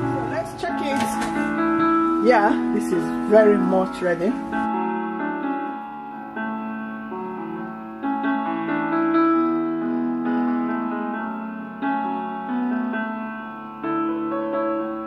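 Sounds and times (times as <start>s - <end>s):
piano music: 0.0s - 15.0s.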